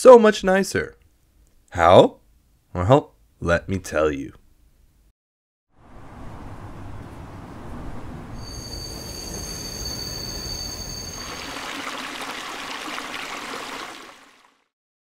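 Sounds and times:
low vehicle rumble: 5.8s - 8.4s
high squealing tones: 8.4s - 11.7s.

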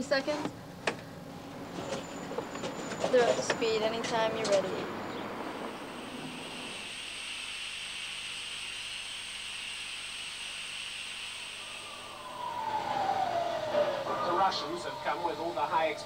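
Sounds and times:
steady hiss: 5.6s - 16.0s
tone sliding down in pitch: 11.8s - 16.0s.

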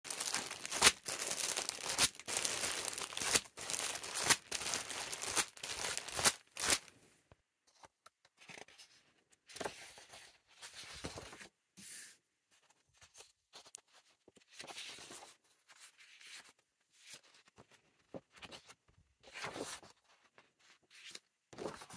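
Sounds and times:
paper rustling on wooden table: 0.1s - 6.8s
plastic bag crinkling: 0.1s - 6.9s.

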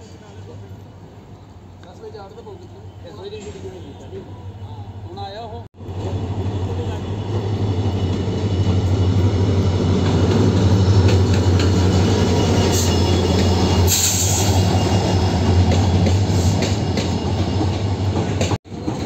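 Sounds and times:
train rumbling past: 0.0s - 19.0s.

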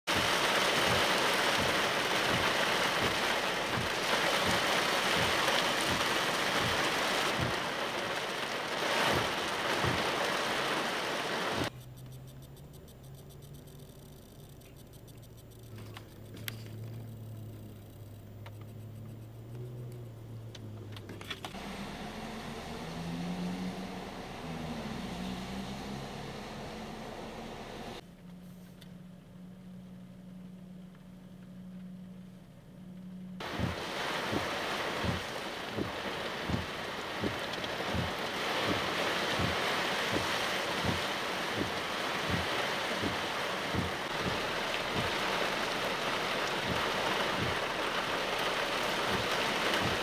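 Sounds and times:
heavy rain hissing: 0.1s - 11.7s, 21.5s - 28.0s, 33.4s - 50.0s
vehicle engine humming: 0.1s - 50.0s
faint clicks: 11.7s - 21.6s.

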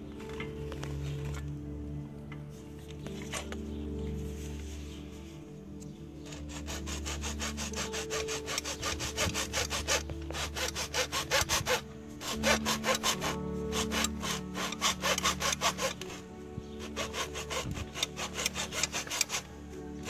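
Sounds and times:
background music: 0.0s - 20.0s
hacksaw cutting plastic pipe: 6.2s - 20.0s.

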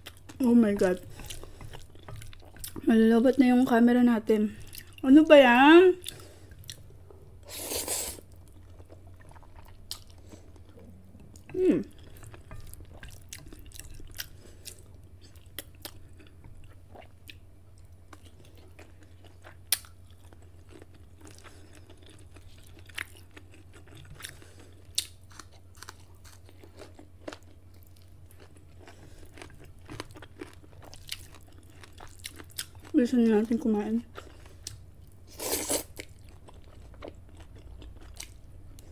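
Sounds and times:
chewing noodles: 7.6s - 33.0s, 34.1s - 38.9s.

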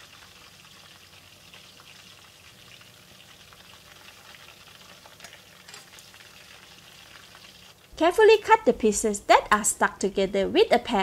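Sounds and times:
fish deep frying in oil: 0.0s - 8.5s.

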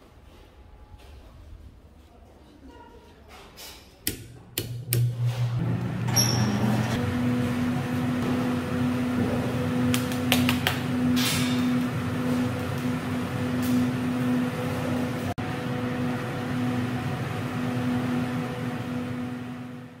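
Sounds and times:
fan humming: 4.0s - 20.0s.

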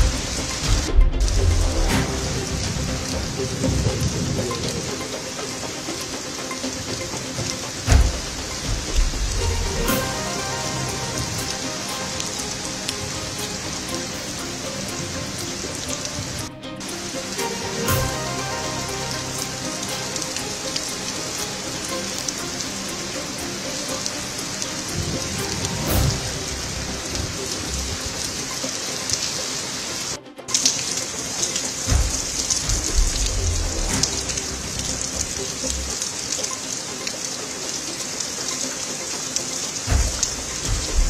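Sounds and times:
low rumbling bursts: 0.0s - 5.2s, 7.8s - 19.8s, 31.9s - 36.0s
heavy rain pouring onto a road: 0.0s - 41.0s.

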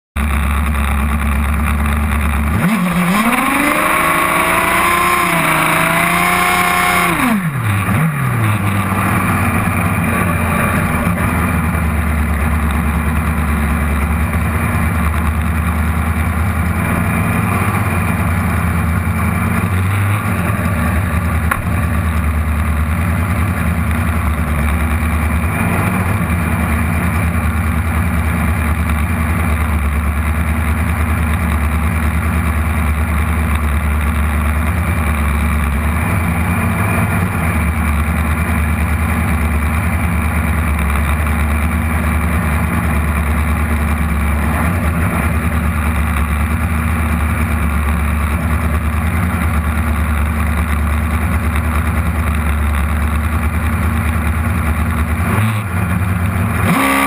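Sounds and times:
motorcycle engine idling: 0.2s - 56.6s
engine revving: 2.2s - 15.5s, 16.1s - 27.5s, 35.0s - 38.0s, 55.1s - 57.0s.

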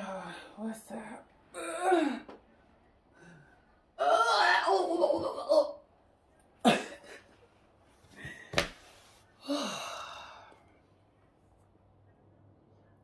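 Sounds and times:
woman sighing: 9.4s - 10.6s.

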